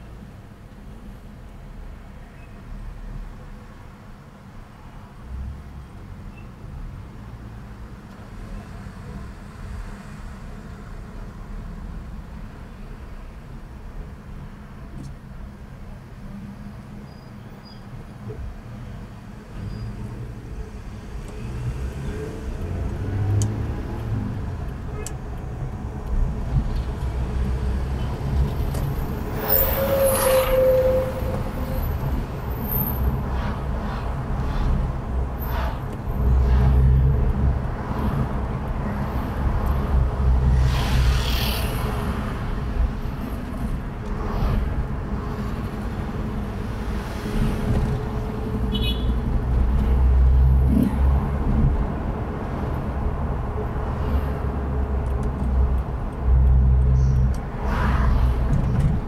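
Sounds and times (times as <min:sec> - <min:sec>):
engine and road rumble: 0:00.0 - 0:59.0
vehicles passing close by: 0:14.9 - 0:59.0.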